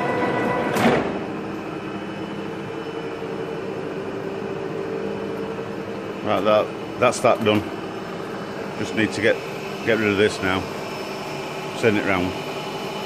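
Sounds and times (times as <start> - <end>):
lathe mechanical drone: 0.0 - 13.0
lathe cutting metal: 6.0 - 13.0.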